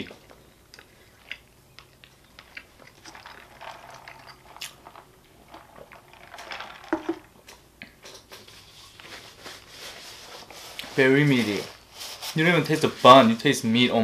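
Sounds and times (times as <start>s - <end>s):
chewing mouth clicks and smacks: 0.7s - 3.0s.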